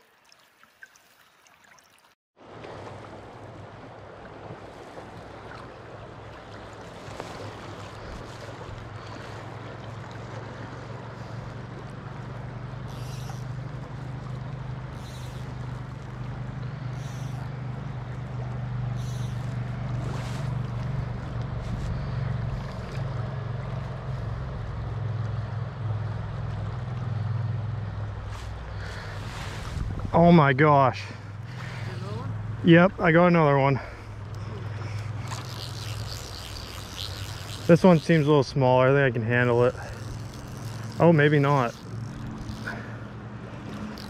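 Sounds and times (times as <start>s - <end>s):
flowing creek water: 0.0s - 44.0s
wind rumble on microphone: 19.6s - 30.3s.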